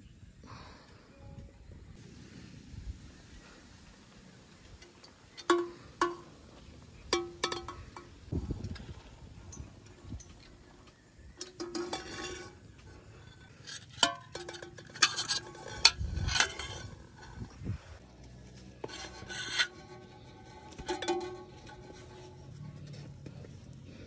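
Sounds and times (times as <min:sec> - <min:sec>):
metal pots clattering: 0:05.4 - 0:06.3, 0:07.1 - 0:08.2, 0:11.3 - 0:17.2, 0:18.8 - 0:22.3.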